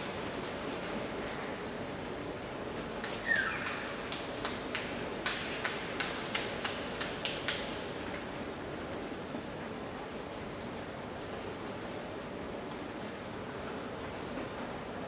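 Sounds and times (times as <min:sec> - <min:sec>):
audience clapping: 0:03.0 - 0:07.7.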